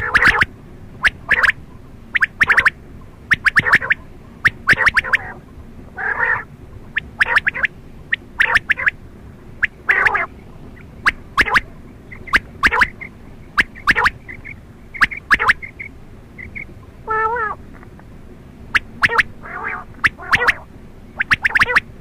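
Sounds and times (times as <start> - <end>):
quail calling: 0.0 - 18.0, 18.6 - 22.0.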